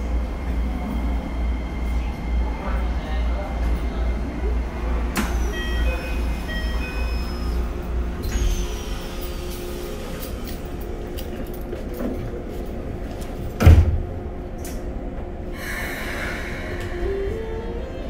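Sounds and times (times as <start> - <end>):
train door closing thump: 13.6 - 14.2
air hiss: 15.6 - 17.3.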